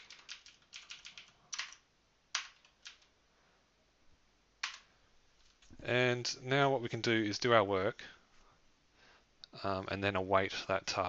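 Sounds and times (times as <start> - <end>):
computer keyboard typing: 0.0 - 3.1, 4.6 - 4.9.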